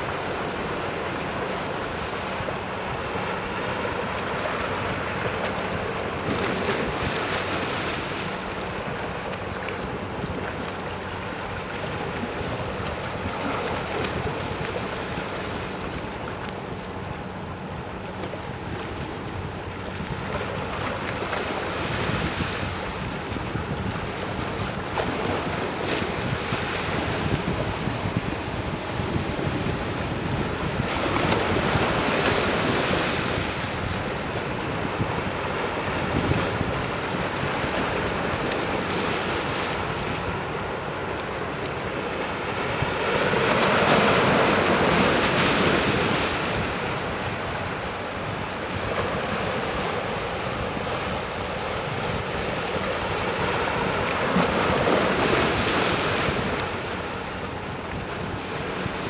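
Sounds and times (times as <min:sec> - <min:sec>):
wind buffeting microphone: 0:09.9 - 0:41.1.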